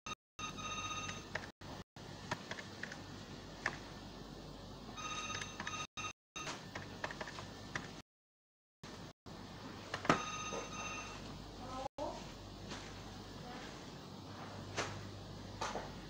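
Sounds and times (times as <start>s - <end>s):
electronic ringing tone: 0.4s - 1.4s, 5.0s - 6.6s, 10.1s - 11.3s.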